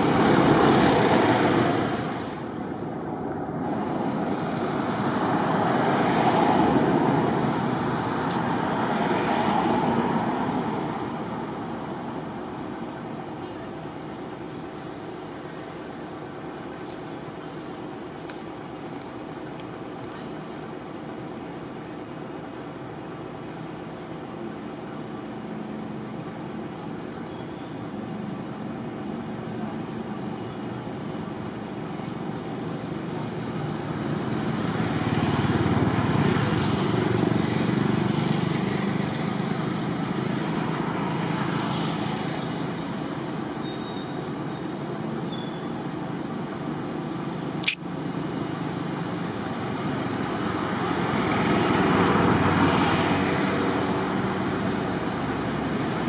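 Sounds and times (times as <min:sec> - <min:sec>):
road traffic rushing: 0:00.0 - 0:56.0
sharp click: 0:47.6 - 0:47.8.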